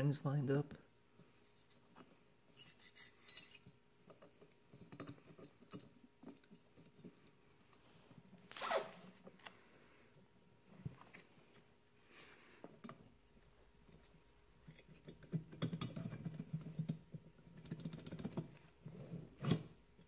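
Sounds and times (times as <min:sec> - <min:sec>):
metal scraping and rubbing: 0:02.5 - 0:03.7.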